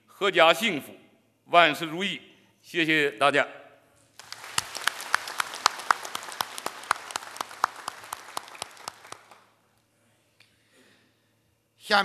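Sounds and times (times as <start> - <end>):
audience applauding: 4.2 - 9.6.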